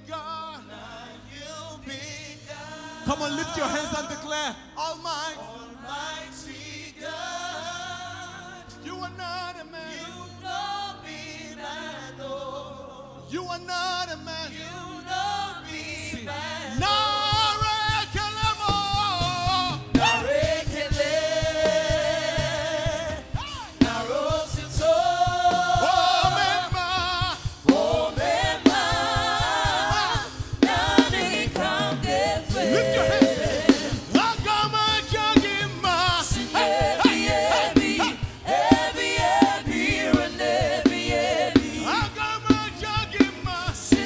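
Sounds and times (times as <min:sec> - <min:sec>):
lead singer and backing vocals: 0:00.0 - 0:44.0
band with steady beat: 0:16.8 - 0:44.0.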